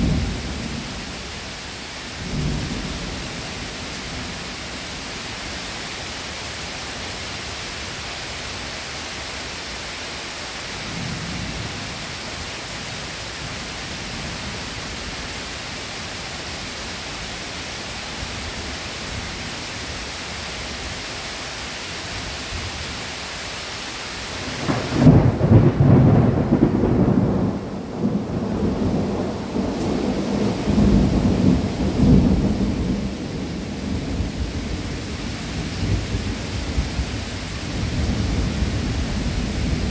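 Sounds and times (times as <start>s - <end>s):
rain hissing: 0.0s - 39.9s
thunder rolling: 24.4s - 34.4s
distant thunder rumble: 24.4s - 39.9s.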